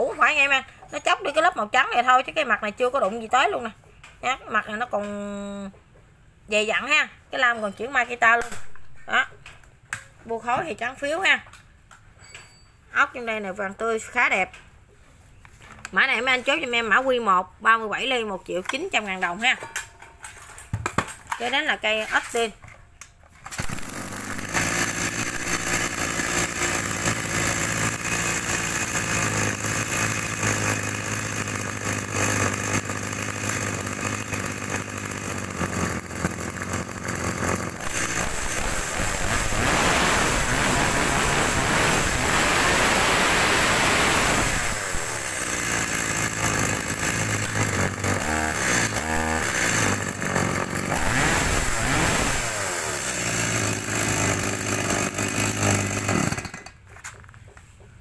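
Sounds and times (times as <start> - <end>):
chainsaw engine revving: 23.5 - 56.8.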